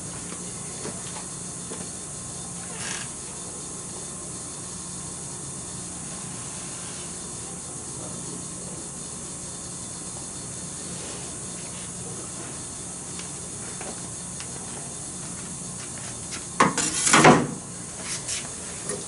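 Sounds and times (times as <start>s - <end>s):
gas burner hissing: 5.6s - 8.0s.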